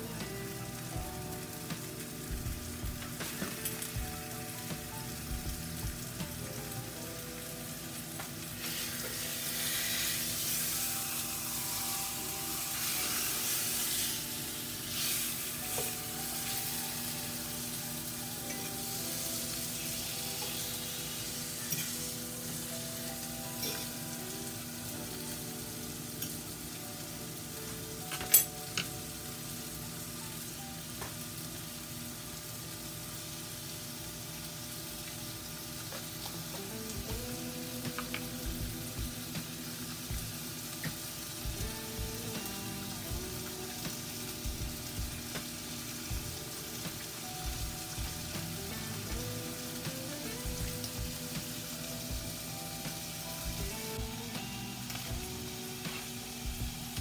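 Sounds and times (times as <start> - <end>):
food sizzling in oil: 0.0 - 57.0.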